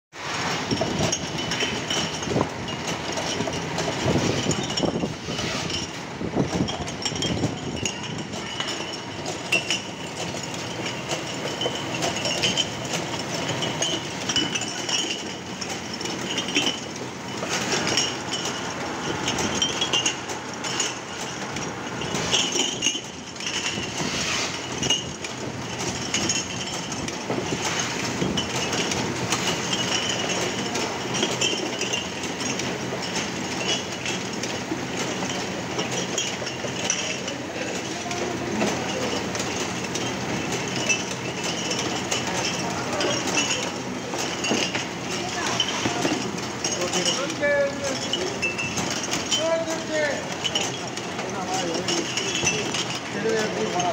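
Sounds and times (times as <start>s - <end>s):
machine conveyor clatter: 0.2s - 53.9s
bottles clinking together: 0.3s - 53.9s.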